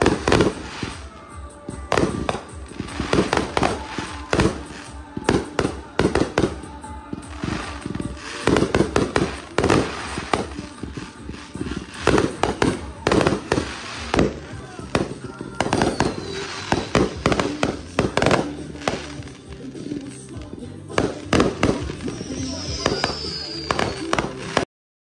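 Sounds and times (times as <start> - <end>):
fireworks bangs and crackling: 0.0 - 24.7.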